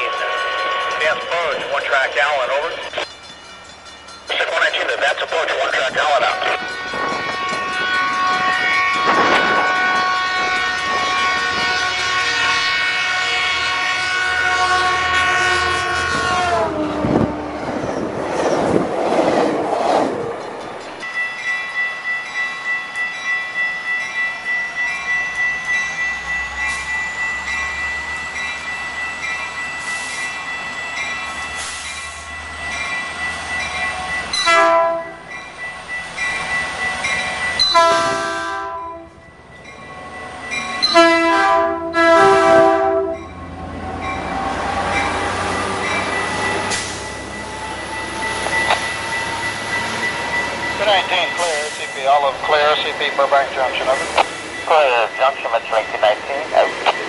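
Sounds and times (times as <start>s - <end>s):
locomotive bell ringing: 0.0s - 14.0s, 20.3s - 57.0s
train rumbling past: 0.0s - 57.0s
train horn: 6.4s - 17.7s, 34.4s - 35.2s, 37.6s - 39.2s, 40.8s - 43.3s.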